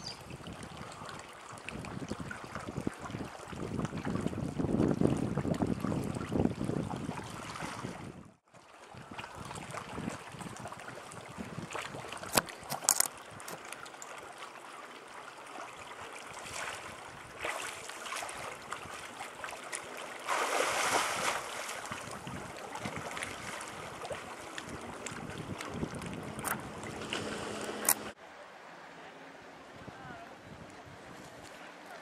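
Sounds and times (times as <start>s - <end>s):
sea water lapping among rocks: 0.3s - 28.2s
swimmer splashing: 13.5s - 28.2s.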